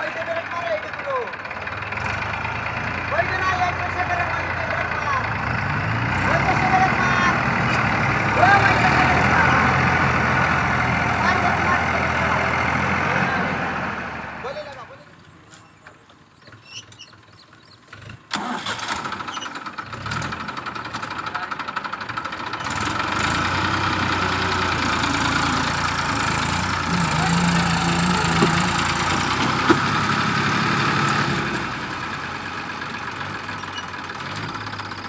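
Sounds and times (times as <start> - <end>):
tractor diesel engine running: 0.0 - 35.0.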